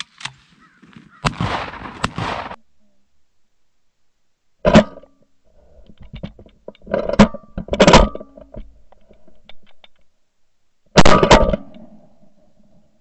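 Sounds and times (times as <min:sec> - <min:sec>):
shotgun blasts: 0:01.2 - 0:02.6
sharp clicks and knocks: 0:05.9 - 0:10.1.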